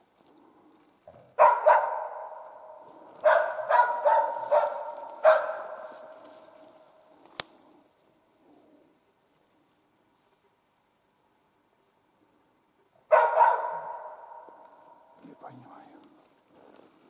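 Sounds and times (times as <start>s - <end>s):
dog barking with echo: 1.4s - 6.0s, 13.1s - 15.2s.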